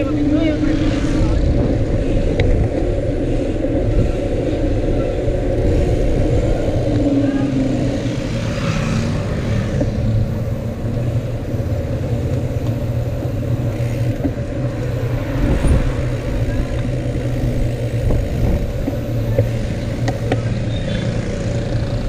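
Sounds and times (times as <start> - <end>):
wind buffeting microphone: 0.0 - 20.3.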